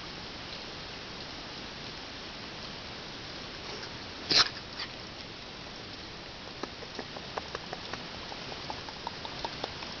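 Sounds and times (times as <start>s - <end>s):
rain hiss: 0.0s - 10.0s
light ticks and taps: 6.6s - 10.0s.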